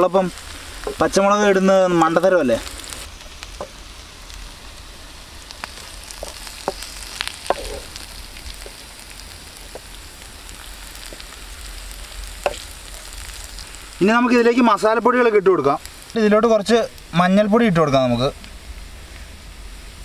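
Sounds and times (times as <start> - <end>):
food sizzling in oil: 0.0 - 20.0
sharp pops and clicks: 0.4 - 1.2, 2.6 - 4.5, 5.4 - 14.0.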